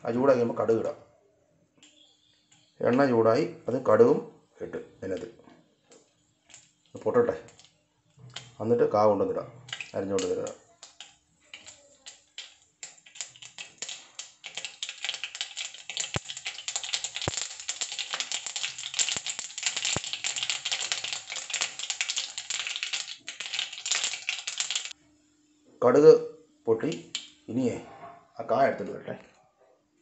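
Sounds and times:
mustard seeds popping in hot oil: 5.9s - 8.6s, 9.6s - 25.0s, 26.9s - 27.4s.

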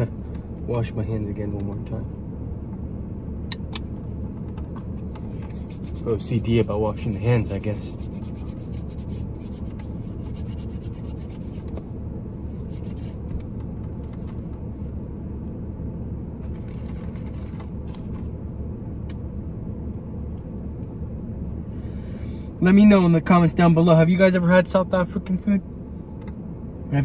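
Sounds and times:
low rumble inside car: 0.0s - 27.0s
hands rubbing and rustling: 5.2s - 14.4s.

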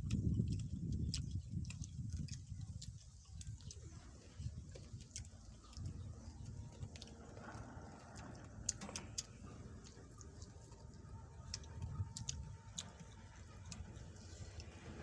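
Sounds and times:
chewing and lip smacks: 0.0s - 15.0s
fingers clicking on metal tray: 4.6s - 15.0s.

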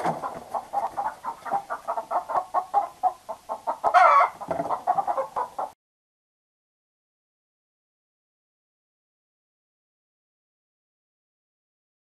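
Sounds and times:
chicken squawk: 0.0s - 5.8s
chickens clucking in alarm: 0.0s - 5.8s.

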